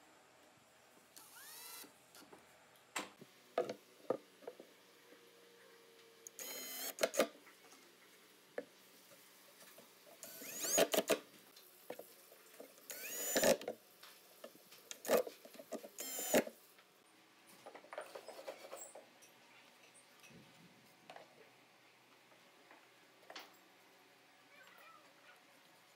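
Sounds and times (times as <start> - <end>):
drill motor whining: 1.2 - 1.9, 6.3 - 7.1, 10.2 - 11.0, 12.9 - 13.6, 16.0 - 16.5.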